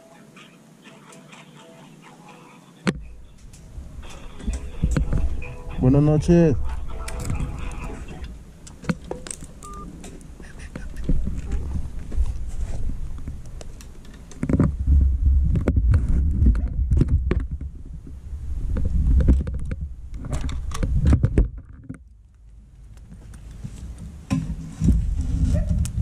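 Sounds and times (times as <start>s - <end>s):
camera handling rumble and rubbing: 7.1s - 14.8s, 15.5s - 26.0s.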